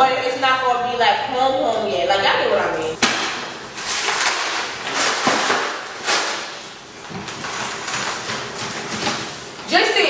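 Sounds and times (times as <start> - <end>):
cardboard tearing: 3.1 - 9.5.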